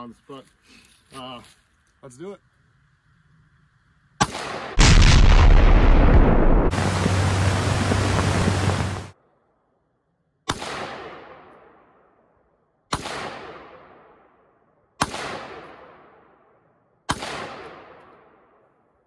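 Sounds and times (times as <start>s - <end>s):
rifle shots with echo: 4.2s - 9.1s, 10.5s - 12.2s, 12.9s - 18.9s.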